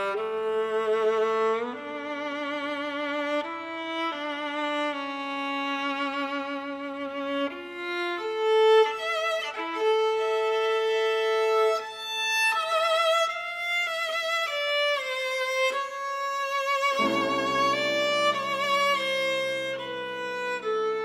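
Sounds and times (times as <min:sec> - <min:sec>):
viola slow melody: 0:00.0 - 0:21.0.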